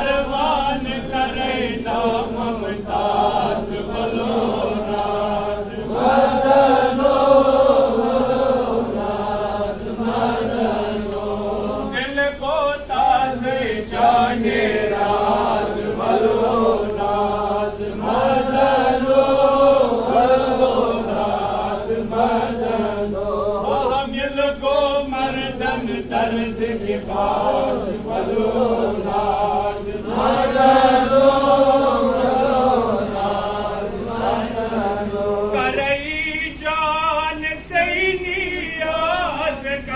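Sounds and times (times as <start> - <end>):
man chanting: 0.0 - 4.8, 11.7 - 14.0, 23.7 - 28.0, 35.5 - 39.9.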